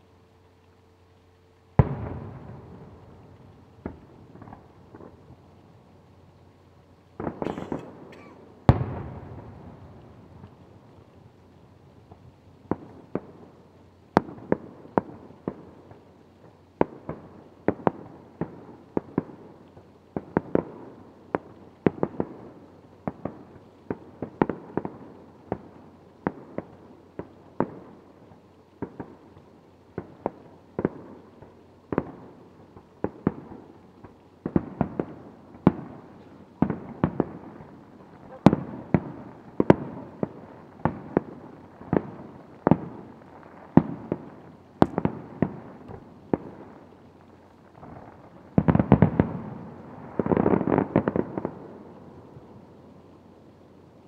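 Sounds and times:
firework shells booming: 0:07.2 - 0:10.5, 0:34.5 - 0:43.1.

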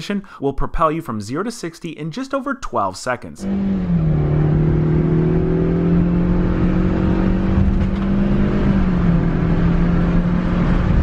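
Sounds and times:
car engine droning: 0:03.4 - 0:11.0.

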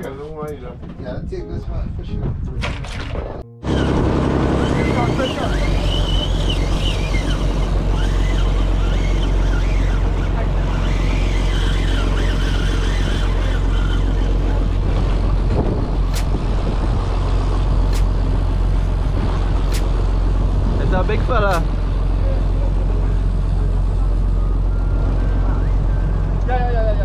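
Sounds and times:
wind buffeting microphone: 0:00.1 - 0:21.6
boat motor rumbling: 0:03.1 - 0:27.0.

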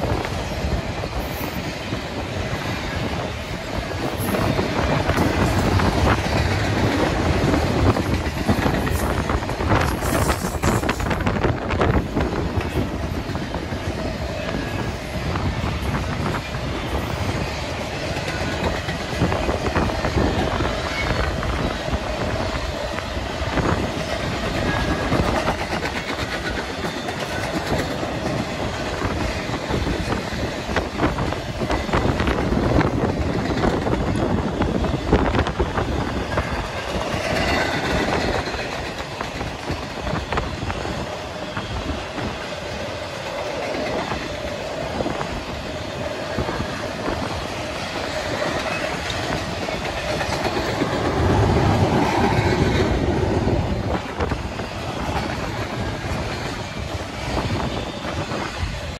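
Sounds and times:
train wheels rumbling on rails: 0:00.0 - 0:58.9
wheels clicking over rail joints: 0:15.8 - 0:45.2, 0:45.9 - 0:57.4.

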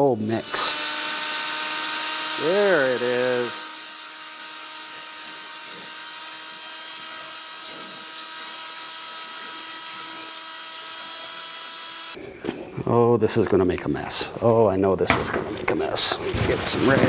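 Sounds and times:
power drill whirring: 0:00.0 - 0:12.2.

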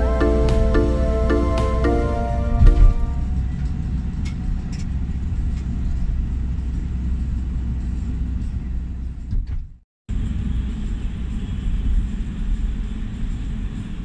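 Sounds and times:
low thumps: 0:00.0 - 0:03.4
background music: 0:00.0 - 0:03.5
vehicle engine and tyres rumble: 0:02.9 - 0:14.0.

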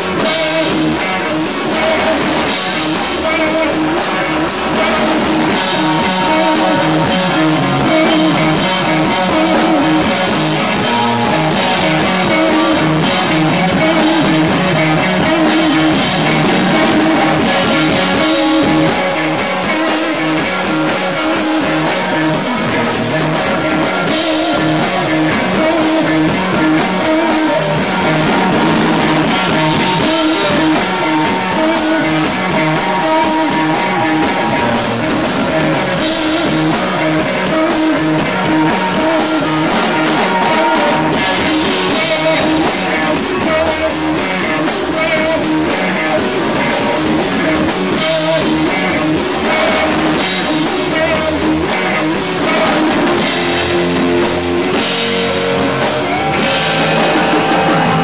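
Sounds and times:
distorted electric guitars: 0:00.0 - 0:58.0
drum kit with crashing cymbals: 0:00.0 - 0:58.0.

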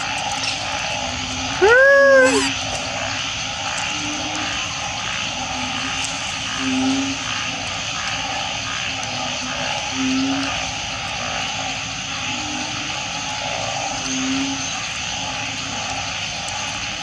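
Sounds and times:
frog chorus drone: 0:00.0 - 0:17.0
low hooting frog notes: 0:01.5 - 0:02.6.

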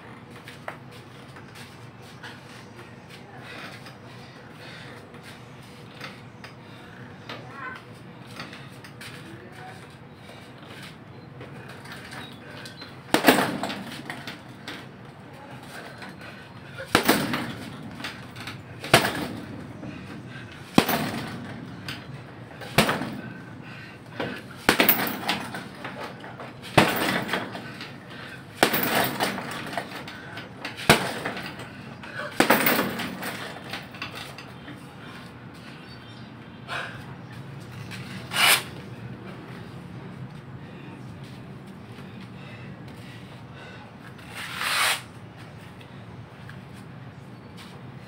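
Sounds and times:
boxing gloves punching heavy bag: 0:13.1 - 0:14.8, 0:15.6 - 0:34.4.

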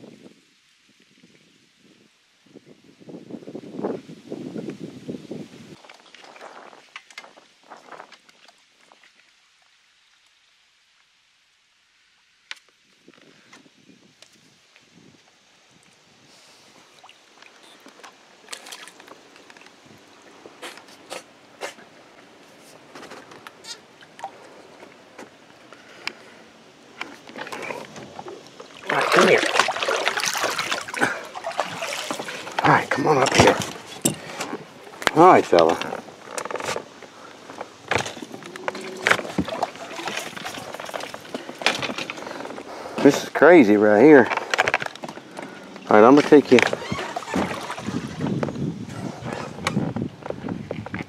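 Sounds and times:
water splashing and sloshing: 0:16.7 - 0:51.0
sharp splashes: 0:18.4 - 0:19.1, 0:27.7 - 0:34.0, 0:38.8 - 0:41.3, 0:46.6 - 0:48.3.

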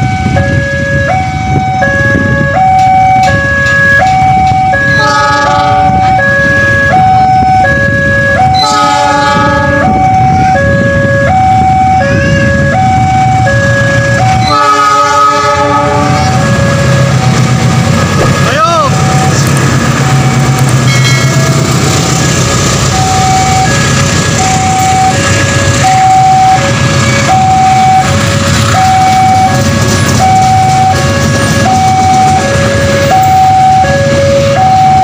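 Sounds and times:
level crossing alarm two-tone: 0:00.0 - 0:17.4, 0:22.9 - 0:35.0
train rumble: 0:00.0 - 0:35.0
locomotive horn blasts: 0:04.7 - 0:07.6, 0:08.4 - 0:11.0, 0:14.3 - 0:16.6.

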